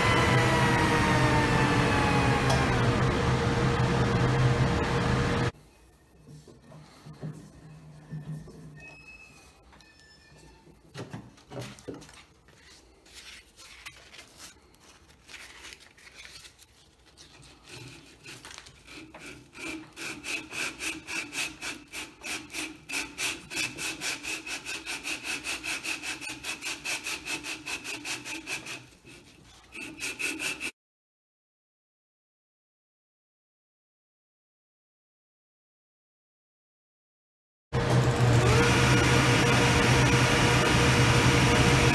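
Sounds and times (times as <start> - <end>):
sandpaper rubbing on wood: 17.1 - 30.7.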